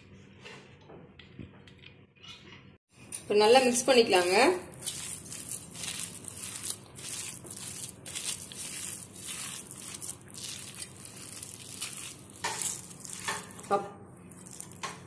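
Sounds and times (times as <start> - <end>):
hand kneading thick batter: 3.5 - 15.0.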